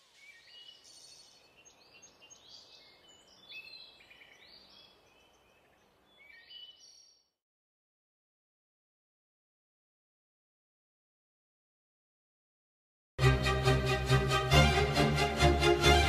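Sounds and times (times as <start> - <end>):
faint birds chirping: 0.0 - 7.4.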